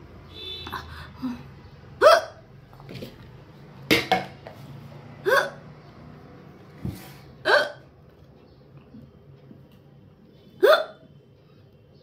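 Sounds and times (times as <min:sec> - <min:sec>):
woman hiccuping: 0:02.0 - 0:02.4, 0:05.2 - 0:05.6, 0:07.4 - 0:07.9, 0:10.6 - 0:11.1.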